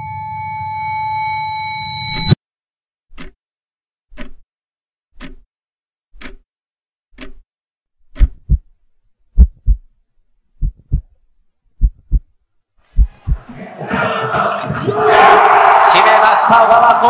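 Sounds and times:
soft ticking: 0:05.2 - 0:05.4, 0:06.2 - 0:06.4, 0:07.2 - 0:07.4
heartbeat thumps: 0:08.2 - 0:08.7, 0:09.4 - 0:09.9, 0:10.6 - 0:11.1, 0:11.8 - 0:12.3, 0:12.9 - 0:14.9.

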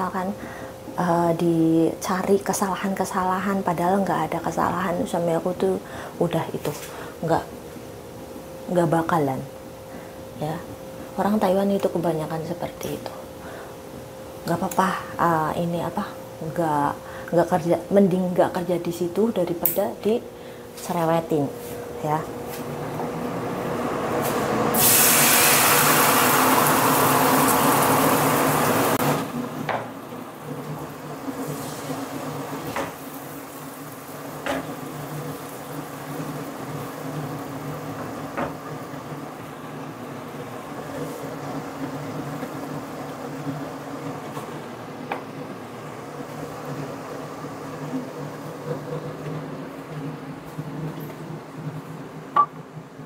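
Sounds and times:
steady low hum: 0:00.0 - 0:24.8
gas stove hiss: 0:24.0 - 0:45.2.

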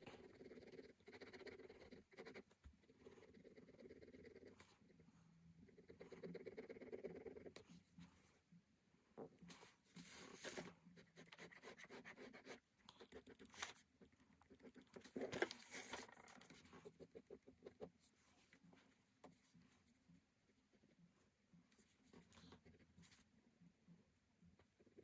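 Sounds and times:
pen scratching on paper: 0:00.0 - 0:08.1, 0:09.5 - 0:18.6
sketchbook rustling: 0:09.2 - 0:12.6, 0:13.4 - 0:14.1, 0:14.7 - 0:20.0.

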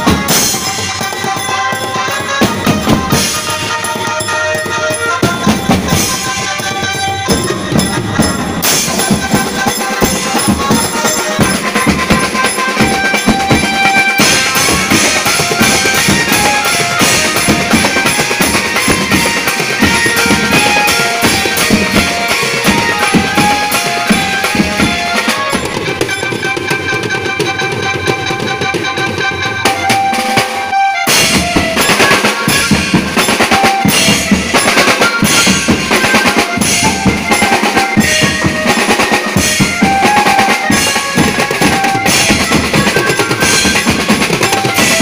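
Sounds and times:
held melody line: 0:00.0 - 0:45.0
snare and tom drums beating: 0:00.0 - 0:45.0
cymbals crashing: 0:00.1 - 0:26.7.

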